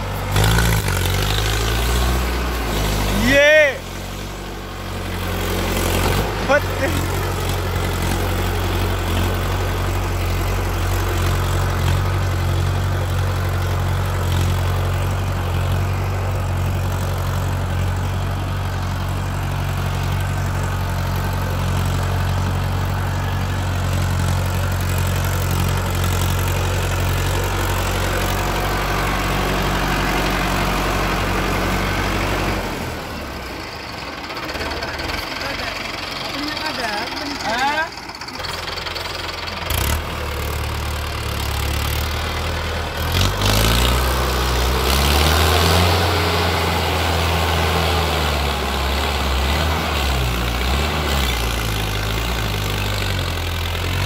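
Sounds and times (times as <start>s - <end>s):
blade dragging sand: 0.0s - 4.2s
tractor diesel engine running: 0.0s - 54.0s.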